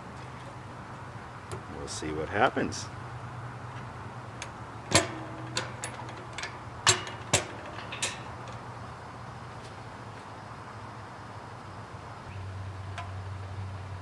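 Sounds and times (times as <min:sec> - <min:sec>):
steady low hum: 0:00.0 - 0:14.0
metal stove door clanking shut: 0:04.9 - 0:08.6.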